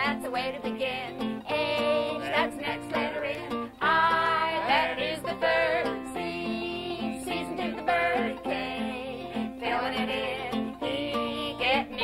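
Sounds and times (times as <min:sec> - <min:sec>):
banjo: 0:00.0 - 0:12.0
children's folk song singing: 0:00.0 - 0:12.0
strummed acoustic guitar: 0:00.0 - 0:12.0.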